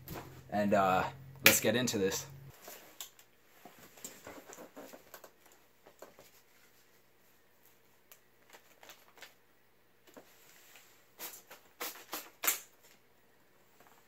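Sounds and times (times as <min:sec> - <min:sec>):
banknotes rustling: 0:04.3 - 0:09.4.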